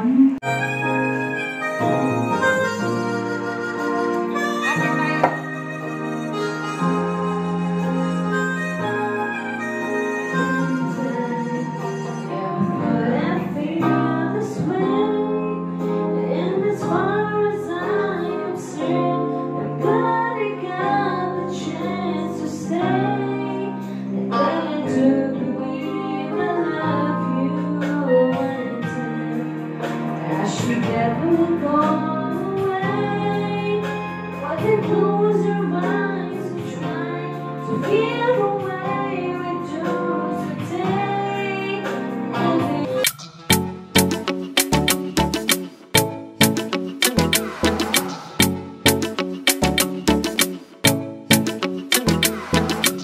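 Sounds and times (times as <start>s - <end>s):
backing track chords and bass: 0.0s - 15.8s, 42.5s - 53.0s
woman singing slow song: 10.3s - 43.0s.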